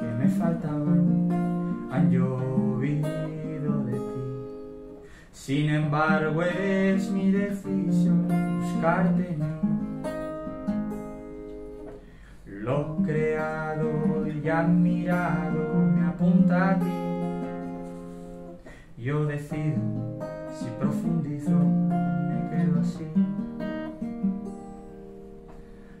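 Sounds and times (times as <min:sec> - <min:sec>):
acoustic guitar strumming chords: 0:00.0 - 0:26.0.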